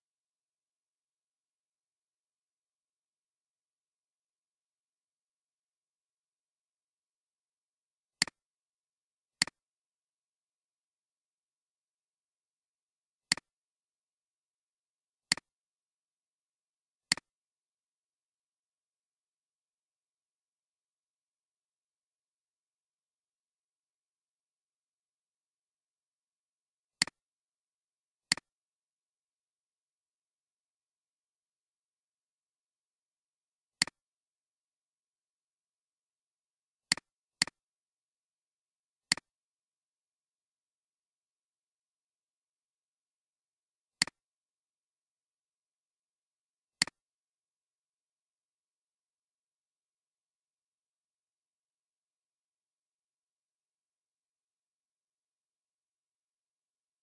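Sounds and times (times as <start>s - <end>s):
computer mouse clicks: 13.3s - 13.5s, 17.1s - 17.3s, 28.3s - 28.5s, 39.1s - 39.3s.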